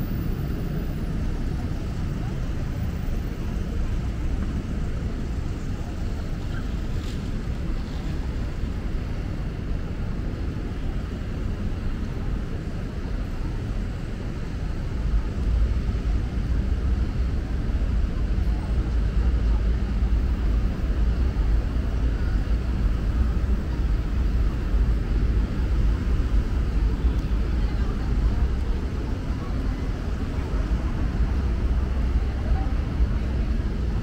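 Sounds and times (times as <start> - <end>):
city street traffic rumble: 0.0 - 34.0.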